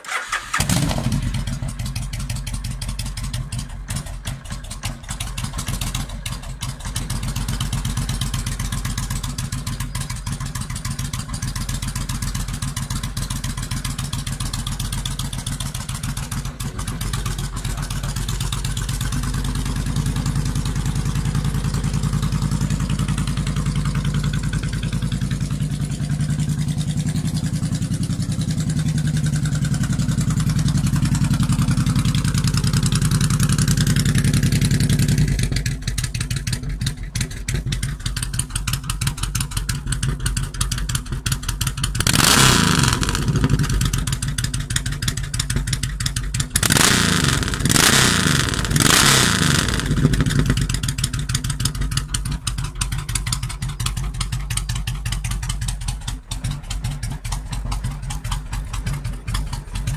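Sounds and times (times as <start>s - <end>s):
motorcycle engine idling: 0.0s - 59.9s.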